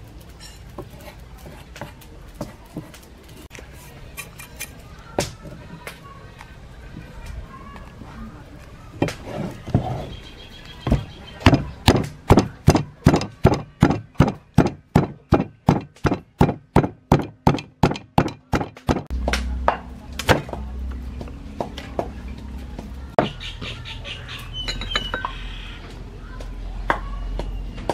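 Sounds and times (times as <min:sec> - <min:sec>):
pestle pounding in wooden mortar: 0:10.8 - 0:20.7.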